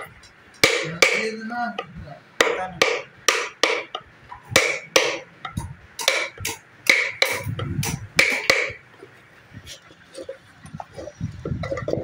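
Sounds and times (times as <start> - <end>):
chisel tapping into wood: 0.0 - 8.8.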